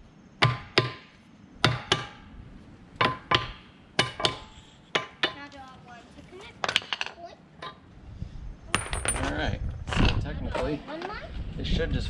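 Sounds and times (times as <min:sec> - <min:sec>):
hammer striking metal bolts: 0:01.6 - 0:02.2, 0:03.0 - 0:05.4.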